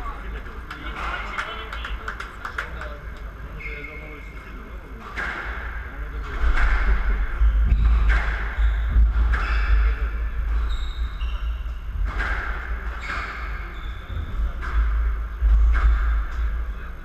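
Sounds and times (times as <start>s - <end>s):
squash ball hitting rackets and walls: 5.0s - 16.6s.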